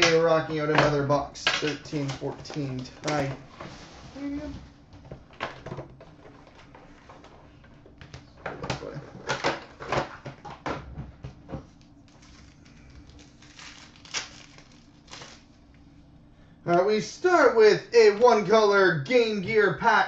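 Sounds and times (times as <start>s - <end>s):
foil wrappers crinkling and tearing: 12.1s - 15.6s.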